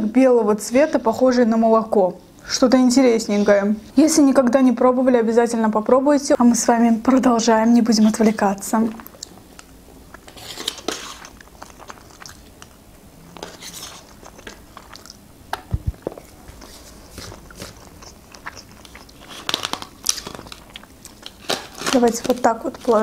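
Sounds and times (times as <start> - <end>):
person biting and chewing: 9.0 - 22.0.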